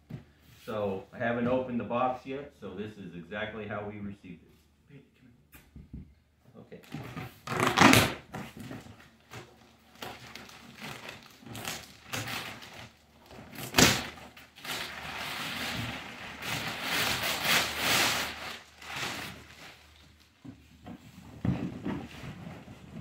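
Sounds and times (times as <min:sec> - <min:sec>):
packing paper crinkling: 0:08.8 - 0:20.4.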